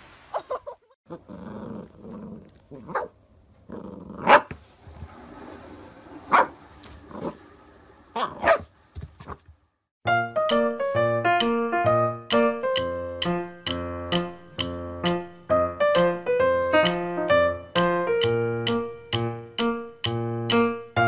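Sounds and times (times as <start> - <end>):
puppy growling: 1.1 - 4.5
puppy barking: 2.8 - 3.2, 4.2 - 4.6, 6.3 - 6.6, 8.2 - 8.7
piano music: 10.0 - 21.0.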